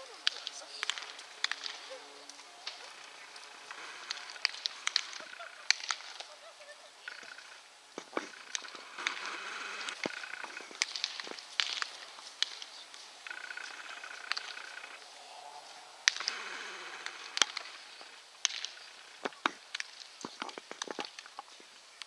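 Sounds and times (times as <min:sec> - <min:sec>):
baseballs smacking into gloves: 0:00.2 - 0:01.9, 0:10.0 - 0:13.0.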